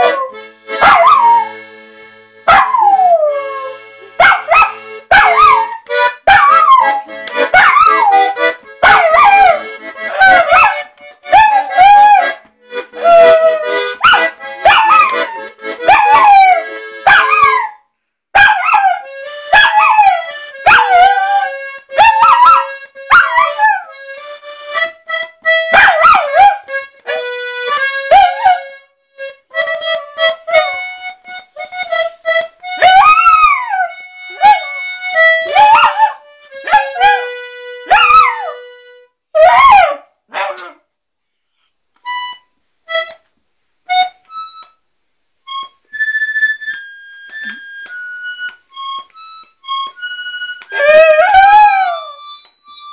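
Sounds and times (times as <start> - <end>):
puppy howling: 0.0 - 1.6, 2.5 - 3.8, 4.4 - 10.7, 11.3 - 12.4, 13.0 - 17.8, 18.4 - 23.9, 25.8 - 26.7, 32.8 - 34.7, 35.4 - 37.3, 37.9 - 38.6, 50.7 - 52.3
reed instrument holding notes: 0.0 - 17.7, 18.9 - 39.1, 43.9 - 44.8, 45.4 - 52.9.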